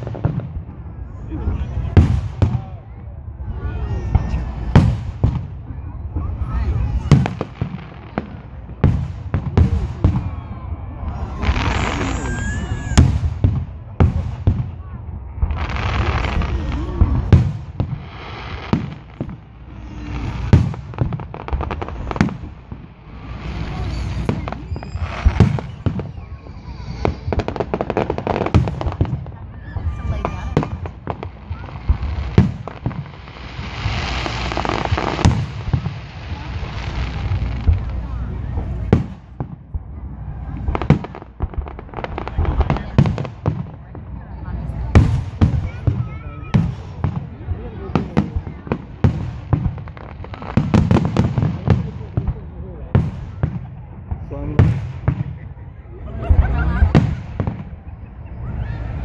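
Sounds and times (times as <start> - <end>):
firework hissing crackle: 0.0 - 55.4
firework shells booming: 11.3 - 39.9.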